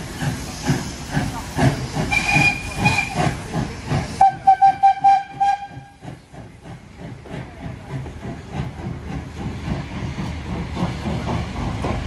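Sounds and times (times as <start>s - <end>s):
steam hissing: 0.0s - 12.0s
steam locomotive chuffing: 0.0s - 12.0s
steam whistle: 2.1s - 3.2s, 4.2s - 5.9s.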